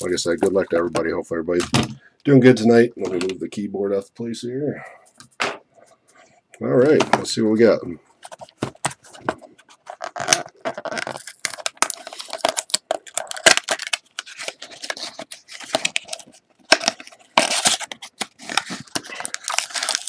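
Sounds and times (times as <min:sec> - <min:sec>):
plastic shrink wrap tearing: 0:09.9 - 0:20.0.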